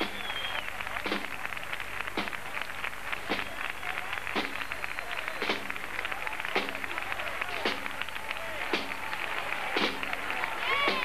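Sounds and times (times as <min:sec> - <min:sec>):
crowd clapping: 0:00.0 - 0:11.0
faint voices: 0:00.0 - 0:11.0.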